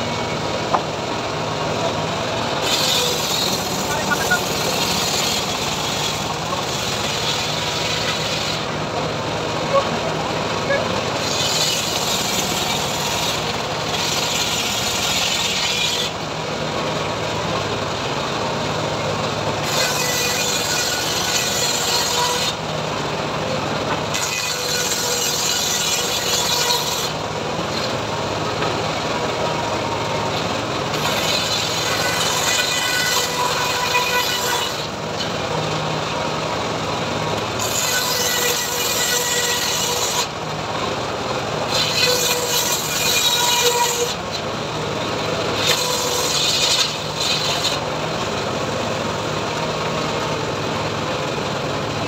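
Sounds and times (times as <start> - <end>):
saw bench engine running: 0.0 - 52.0
saw blade cutting wood: 1.8 - 16.3, 19.6 - 22.7, 23.8 - 28.8, 29.4 - 36.0, 37.4 - 40.6, 41.6 - 50.3.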